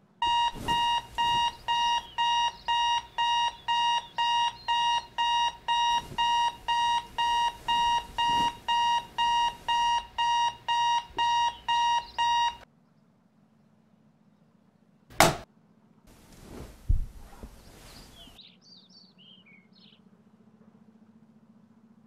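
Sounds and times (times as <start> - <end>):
alarm clock beeping: 0.2 - 12.6.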